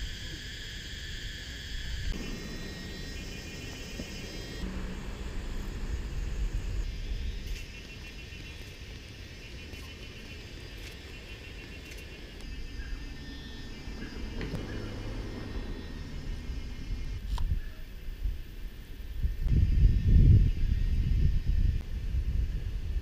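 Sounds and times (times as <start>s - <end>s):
rapid pulsed chirping: 0.0s - 17.2s
low rumble: 1.7s - 8.8s.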